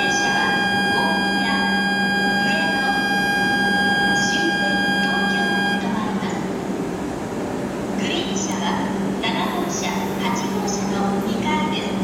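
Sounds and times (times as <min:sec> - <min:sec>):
electronic buzzing departure bell: 0:00.0 - 0:05.9
low steady hum: 0:00.0 - 0:12.0.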